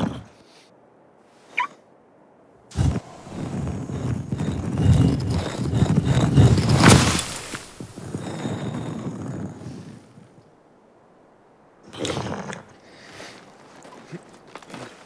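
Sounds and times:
stone grinding and rumbling: 0:02.7 - 0:10.3.

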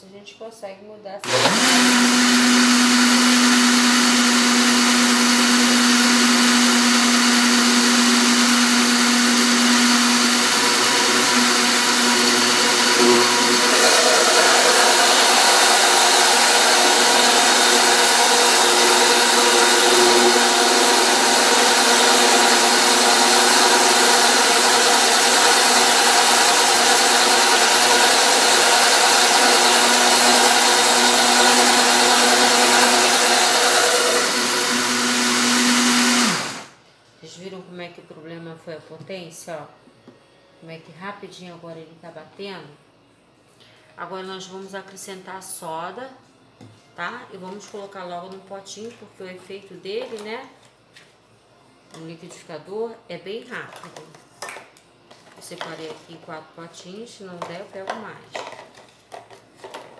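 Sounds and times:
blender whirring: 0:01.2 - 0:36.8.

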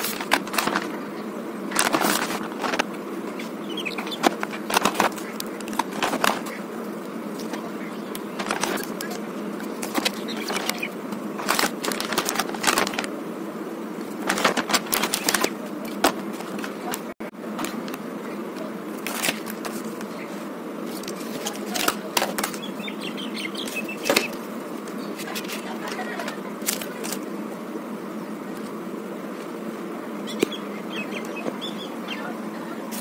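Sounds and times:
plastic packaging crinkling: 0:00.0 - 0:01.0, 0:01.6 - 0:02.9, 0:03.8 - 0:06.6, 0:08.2 - 0:13.1, 0:14.0 - 0:16.7, 0:19.0 - 0:20.0, 0:20.9 - 0:22.6, 0:25.2 - 0:27.2
steady background hum: 0:00.0 - 0:33.0.

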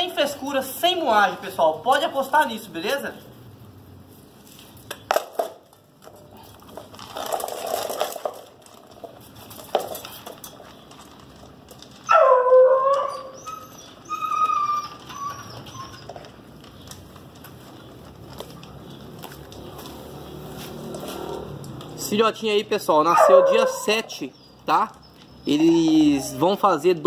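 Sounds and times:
puppy whining and whimpering: 0:12.0 - 0:16.3.

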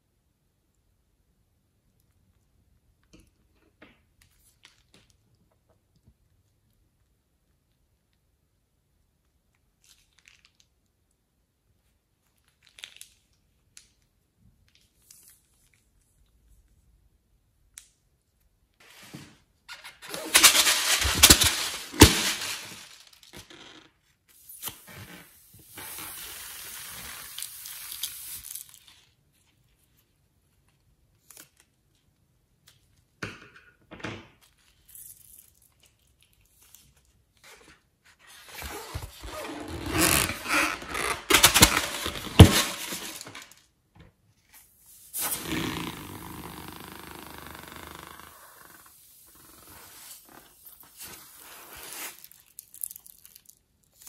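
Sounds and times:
balloons rustling and crackling: 0:18.8 - 0:23.6, 0:37.7 - 0:43.7, 0:44.6 - 0:53.5.

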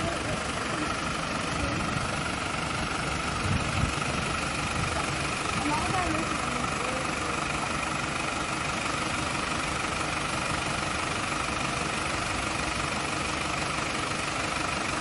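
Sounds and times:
water pump engine droning: 0:00.0 - 0:15.0.

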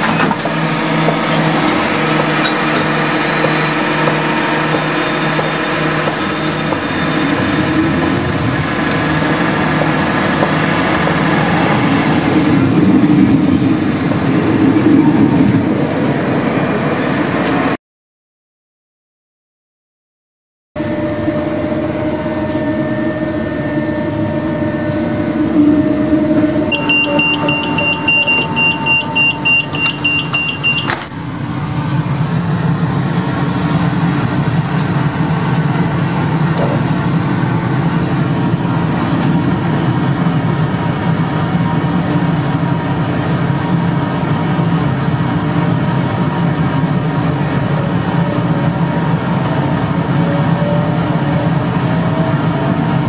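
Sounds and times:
train hum: 0:00.0 - 0:17.8, 0:20.8 - 0:53.0
rapid pulsing door warning beep: 0:26.7 - 0:31.0.

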